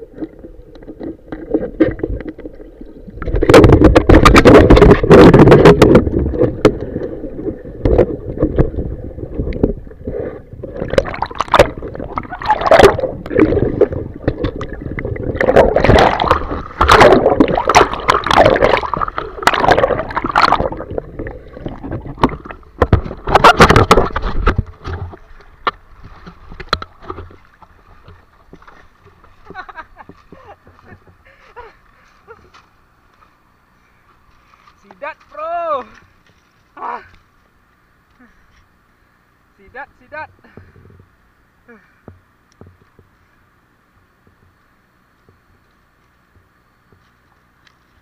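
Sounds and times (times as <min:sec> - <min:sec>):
water gurgling underwater: 0:00.0 - 0:28.7
knocks and bumps on riverbed: 0:03.2 - 0:06.9, 0:21.7 - 0:31.2.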